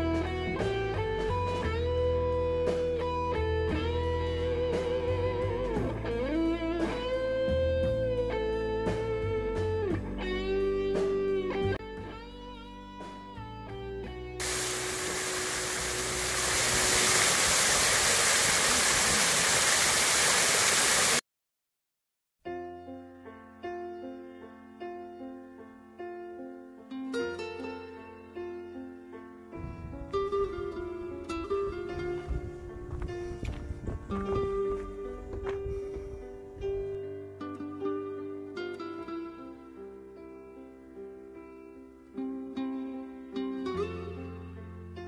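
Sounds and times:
electric guitar music: 0.0s - 17.3s.

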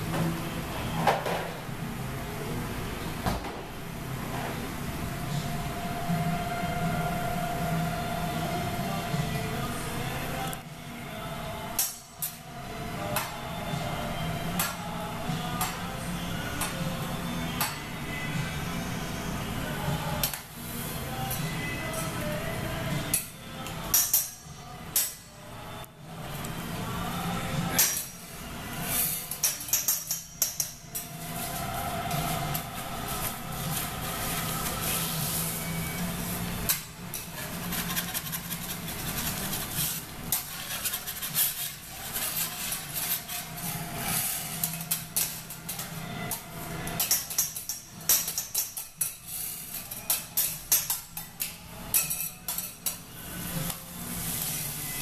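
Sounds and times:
metal spatulas clacking on griddle: 29.4s - 30.8s, 47.0s - 53.0s
food sizzling on griddle: 33.0s - 35.6s, 53.2s - 55.0s.

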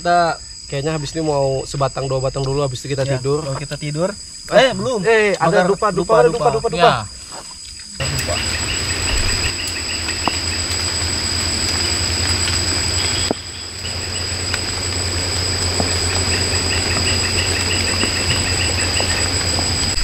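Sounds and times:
high-pitched insect drone: 0.0s - 20.0s
pulsed cricket-like chirps: 0.0s - 20.0s
low steady hum: 8.0s - 20.0s.

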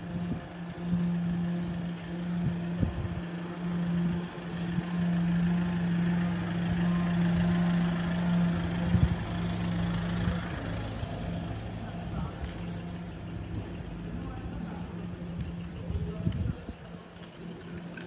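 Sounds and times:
engine idling: 0.0s - 18.0s
street ambience: 0.0s - 18.0s.

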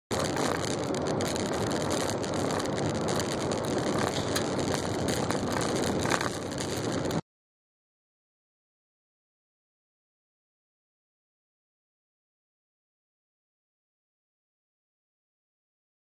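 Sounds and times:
vehicle engine noise: 0.0s - 7.2s
sharp clicks and knocks: 0.1s - 7.2s
tyres on gravel: 0.1s - 7.2s.

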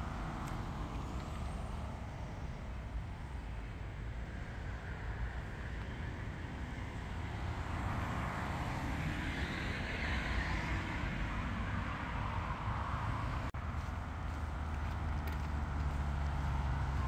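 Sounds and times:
traffic rumble: 0.0s - 17.0s
vehicle passing: 7.0s - 17.0s.

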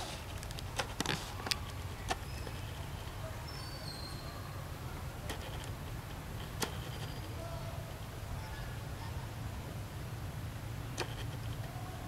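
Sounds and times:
faint high chirps: 2.2s - 4.6s
sharp clicks: 10.9s - 11.7s.

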